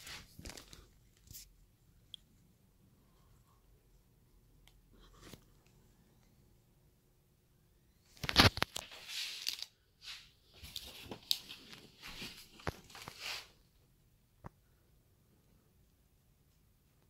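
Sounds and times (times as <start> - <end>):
rustling and scraping: 0.0 - 1.5, 8.1 - 13.6.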